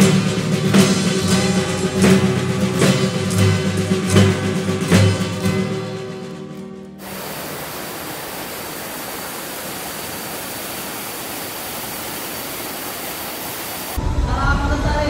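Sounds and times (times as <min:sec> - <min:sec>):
acoustic guitar tune: 0:00.0 - 0:07.2
waterfall rushing over rocks: 0:07.0 - 0:14.0.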